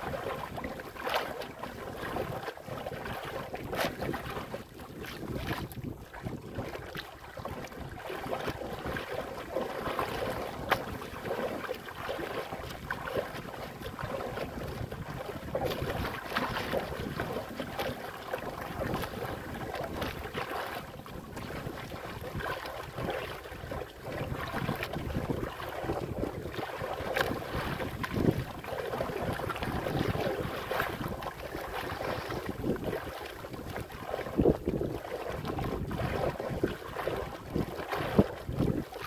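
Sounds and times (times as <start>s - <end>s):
waves slapping against boat hull: 0.0s - 39.0s
wind buffeting microphone: 1.9s - 9.1s, 21.0s - 39.0s.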